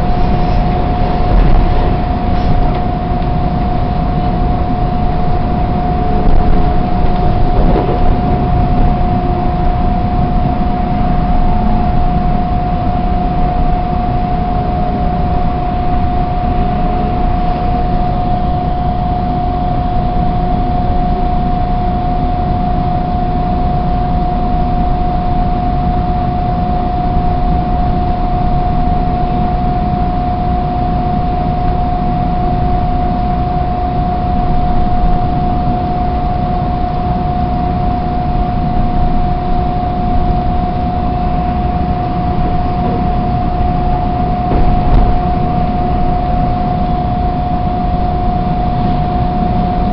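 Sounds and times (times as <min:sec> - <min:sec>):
train wheels rumbling on rail: 0:00.0 - 0:21.6, 0:32.1 - 0:49.9
high whine: 0:00.0 - 0:49.9.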